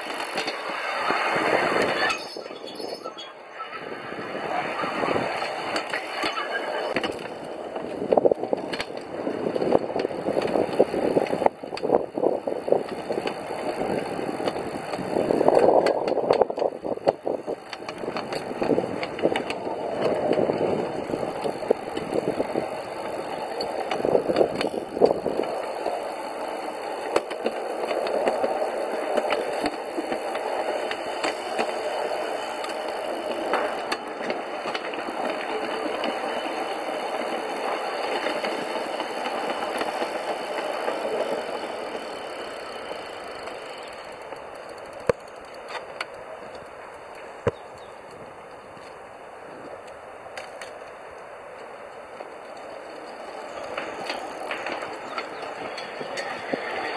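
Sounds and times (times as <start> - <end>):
steel wheels rumbling on rails: 0.0 - 56.9.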